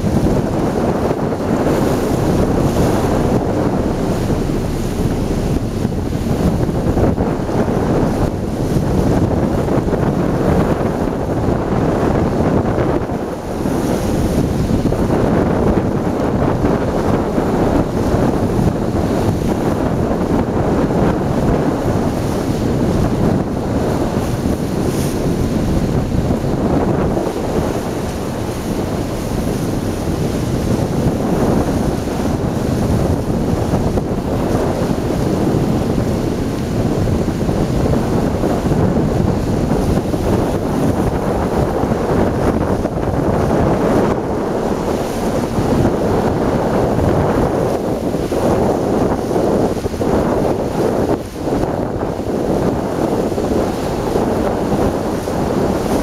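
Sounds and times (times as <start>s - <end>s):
strong wind buffeting microphone: 0.0s - 56.0s.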